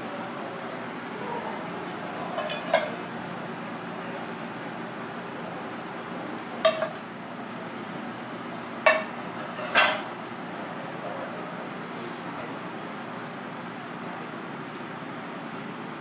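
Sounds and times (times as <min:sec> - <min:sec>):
steady background noise: 0:00.0 - 0:16.0
metal utensils clinking on ceramic: 0:02.4 - 0:03.0, 0:06.6 - 0:07.0.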